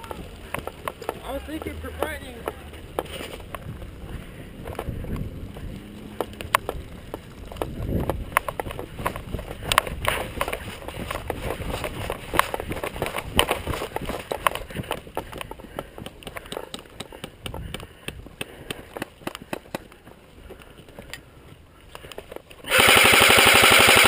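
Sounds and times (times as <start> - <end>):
footsteps on dry dirt: 0.0 - 22.7.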